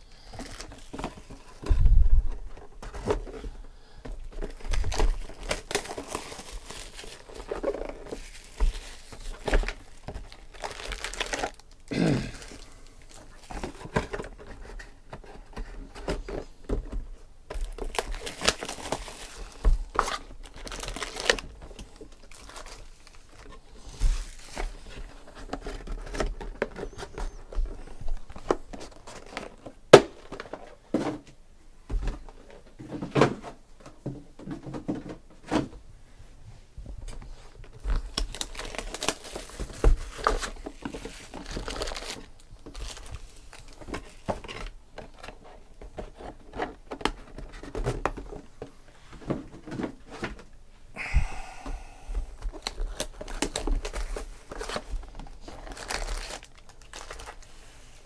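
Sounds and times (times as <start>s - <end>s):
plastic shrink-wrap crinkling: 4.3s - 14.9s, 17.5s - 30.7s, 37.6s - 48.4s, 52.3s - 58.0s.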